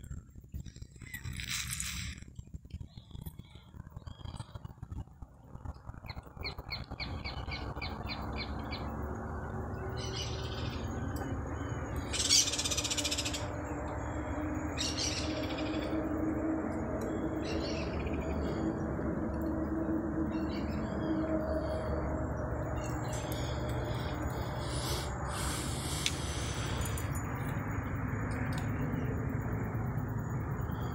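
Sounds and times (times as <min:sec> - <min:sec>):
low background rumble: 0:00.0 - 0:30.9
harsh bird calls: 0:09.6 - 0:27.1
bird chirps: 0:09.7 - 0:16.1, 0:17.0 - 0:19.6.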